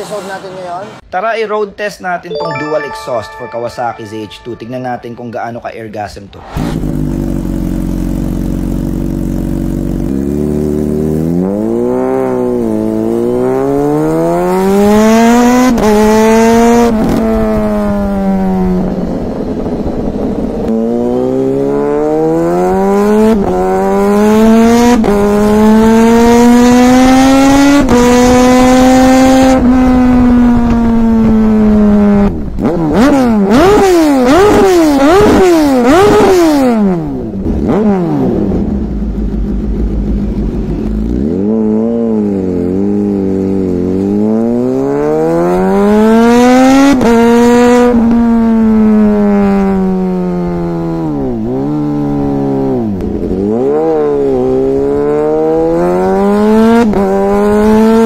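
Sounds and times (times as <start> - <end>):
motorcycle engine accelerating: 6.6 - 58.0
motorcycle engine idling: 38.7 - 41.1.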